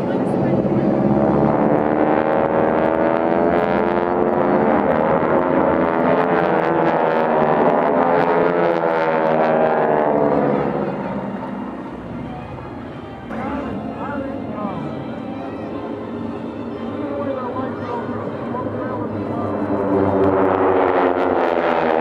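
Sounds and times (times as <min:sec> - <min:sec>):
propeller aircraft engines droning: 0:00.0 - 0:22.0.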